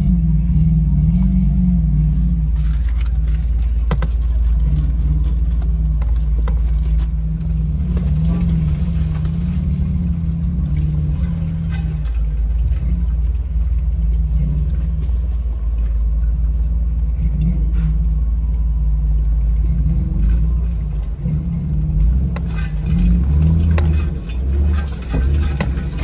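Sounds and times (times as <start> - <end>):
vehicle engine low rumble: 0.0 - 26.0
branches brushing against vehicle: 2.4 - 17.0, 22.0 - 26.0.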